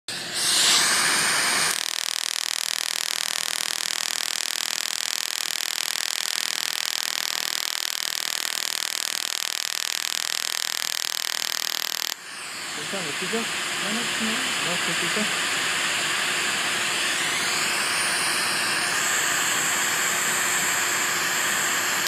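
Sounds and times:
laser fast-pulsing hiss: 0.1s - 15.3s.

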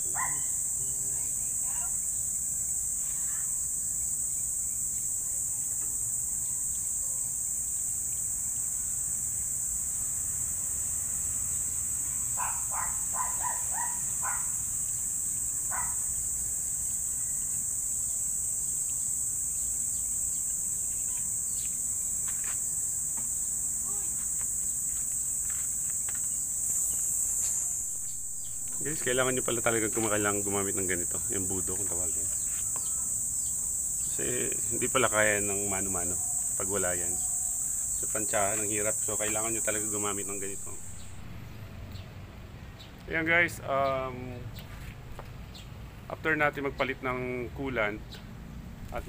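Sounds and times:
insects droning: 0.0s - 49.0s.

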